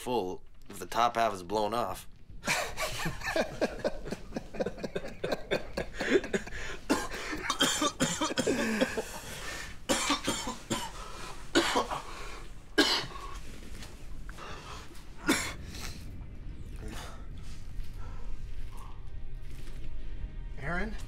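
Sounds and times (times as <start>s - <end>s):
man laughing: 2.4s - 9.3s
man coughing: 2.5s - 12.2s, 12.8s - 13.4s, 15.2s - 15.6s.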